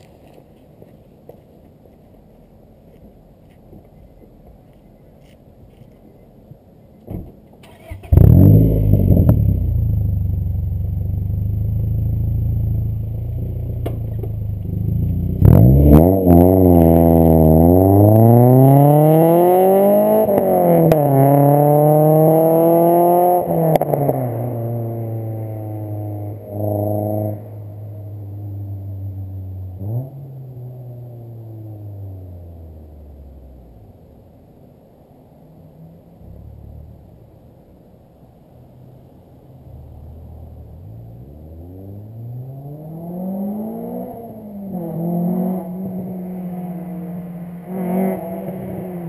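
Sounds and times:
car engine revving and accelerating: 7.8 - 33.6, 39.8 - 49.0.

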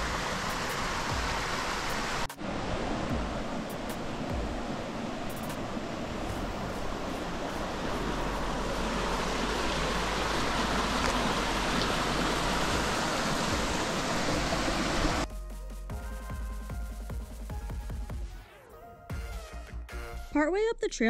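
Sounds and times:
stream rushing over rocks: 0.0 - 15.2
electronic music: 15.1 - 20.5.

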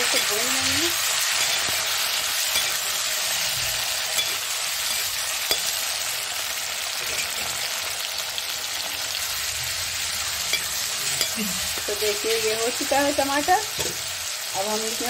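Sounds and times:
metal spatula scraping pan: 0.0 - 6.0, 7.0 - 7.7
food sizzling in hot oil: 0.0 - 15.0.

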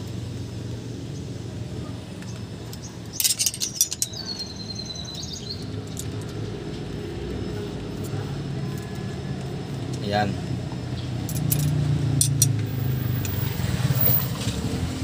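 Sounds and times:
metal tools clinking: 3.1 - 4.5, 11.2 - 13.4.

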